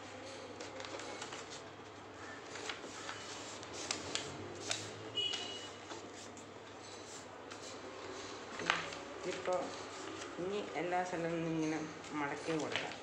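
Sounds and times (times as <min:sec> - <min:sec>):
paper crackling as folded: 0:00.6 - 0:06.4, 0:08.5 - 0:10.4, 0:12.0 - 0:13.0
paper rustling: 0:00.6 - 0:10.7, 0:12.0 - 0:13.0.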